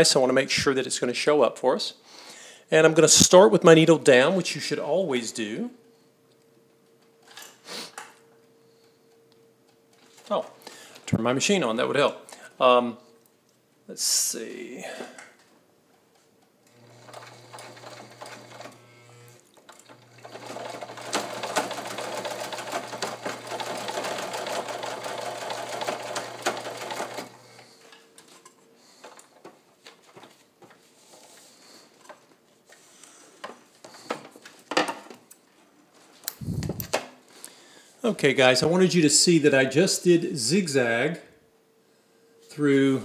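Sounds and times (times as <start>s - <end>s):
sewing machine stitching: 16.7s - 27.4s.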